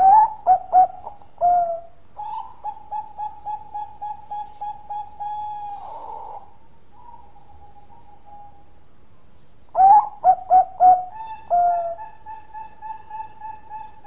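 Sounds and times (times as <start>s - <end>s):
dove cooing: 0.0s - 8.8s, 9.8s - 14.0s.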